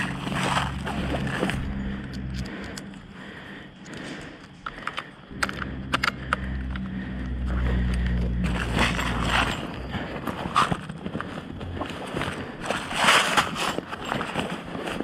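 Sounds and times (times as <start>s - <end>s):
low steady drone: 0.0s - 13.0s
airsoft rifle clicks: 2.0s - 3.0s, 3.8s - 7.0s.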